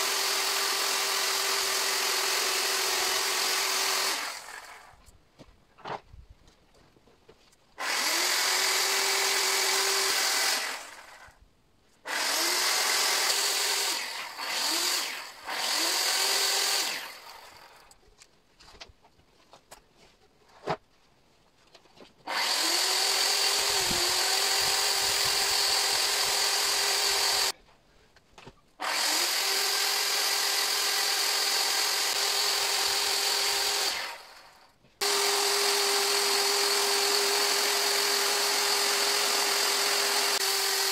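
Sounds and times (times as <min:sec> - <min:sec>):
chainsaw cutting wood: 0:00.0 - 0:05.0, 0:07.8 - 0:11.4, 0:12.1 - 0:18.0, 0:22.2 - 0:27.6, 0:28.8 - 0:40.9.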